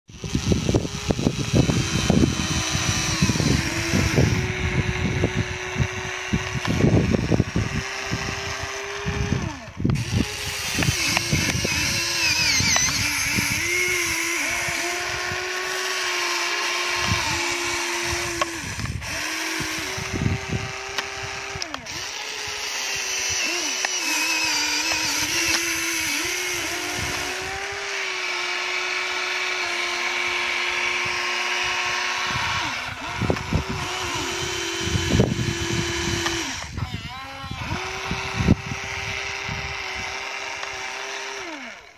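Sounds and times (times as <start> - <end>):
electric motors whining: 0.1 - 41.9.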